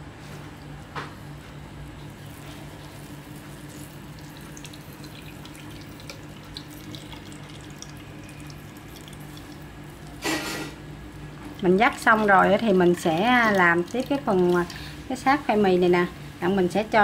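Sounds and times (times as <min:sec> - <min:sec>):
liquid dripping into basin: 0:02.0 - 0:10.2, 0:11.2 - 0:15.0.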